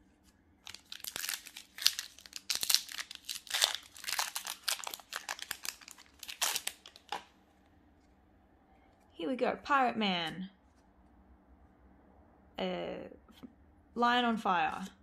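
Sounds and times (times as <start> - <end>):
foil wrapper crinkling: 0.6 - 7.3.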